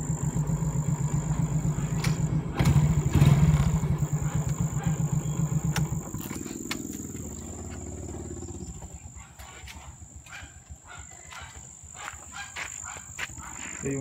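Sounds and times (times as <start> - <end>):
faint outdoor background: 0.0 - 14.0
motorcycle engine rumble: 0.0 - 14.0
engine switch click: 5.6 - 7.0.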